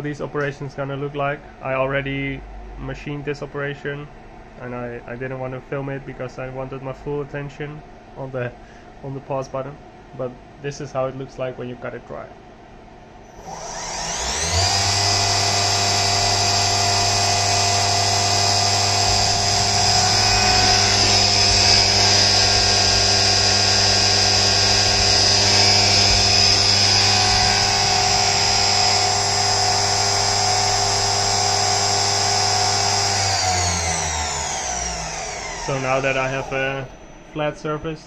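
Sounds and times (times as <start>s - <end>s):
milling machine spindle whine: 13.3s - 38.0s.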